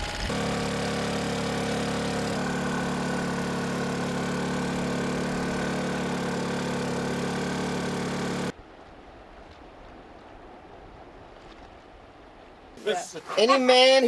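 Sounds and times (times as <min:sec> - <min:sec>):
boat engine humming: 0:00.0 - 0:08.5.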